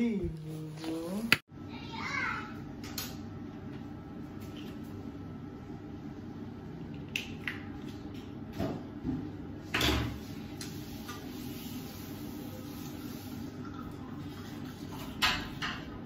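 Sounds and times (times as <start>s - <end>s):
items clicking at a sink: 6.9s - 8.3s.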